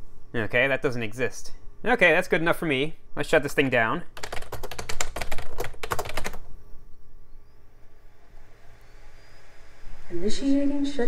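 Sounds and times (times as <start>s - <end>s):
faint steady hum: 0.0s - 11.0s
computer keyboard typing: 3.6s - 6.5s.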